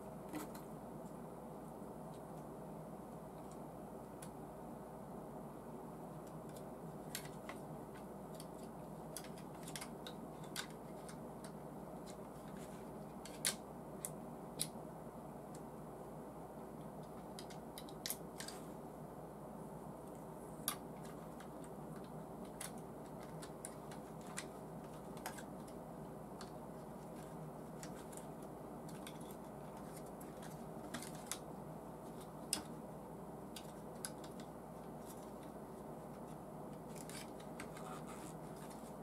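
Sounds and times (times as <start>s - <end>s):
plastic parts clicking: 6.2s - 14.7s, 17.0s - 18.7s, 20.6s - 25.8s, 26.4s - 32.8s, 33.5s - 35.6s.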